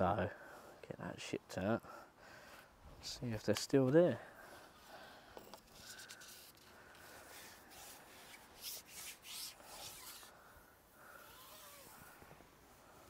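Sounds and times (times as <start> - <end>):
fishing pole rubbing through hands: 5.6 - 10.3, 11.2 - 12.1.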